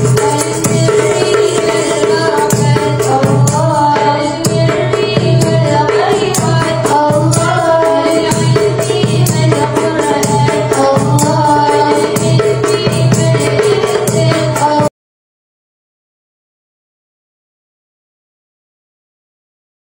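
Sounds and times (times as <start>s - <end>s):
tambourines jingling: 0.0s - 4.0s
darbuka beat: 0.0s - 14.9s
women singing through microphones: 0.0s - 14.9s.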